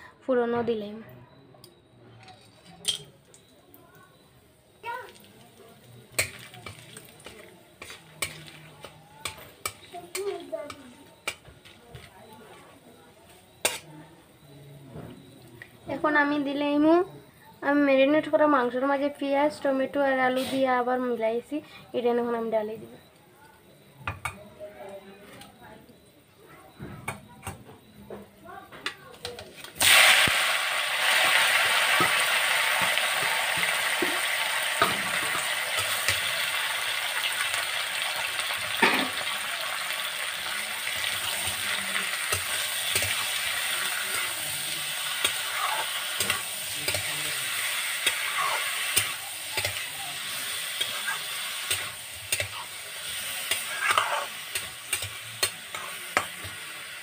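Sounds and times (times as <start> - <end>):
food sizzling in hot oil: 4.0 - 14.5, 17.6 - 22.6, 29.4 - 57.0
metal spatula scraping pan: 6.2 - 10.2, 41.0 - 56.7.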